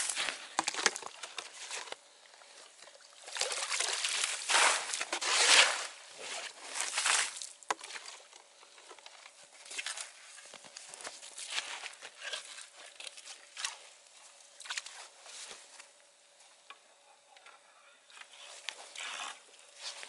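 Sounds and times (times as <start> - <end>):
slush and ice scraped: 4.0 - 8.1, 18.3 - 20.0.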